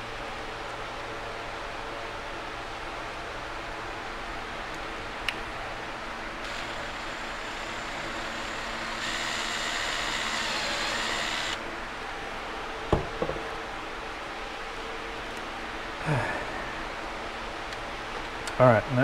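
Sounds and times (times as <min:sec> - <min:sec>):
fan hum: 0:00.0 - 0:19.0
power drill drilling plastic: 0:06.4 - 0:11.6.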